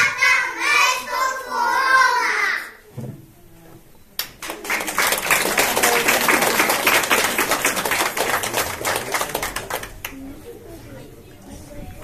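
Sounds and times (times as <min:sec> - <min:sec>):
audience applauding: 0:04.4 - 0:10.2.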